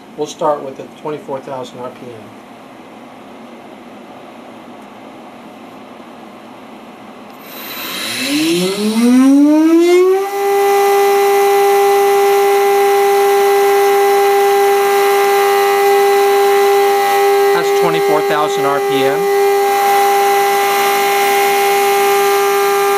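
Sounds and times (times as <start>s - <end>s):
router spindle motor whine: 7.3s - 22.9s.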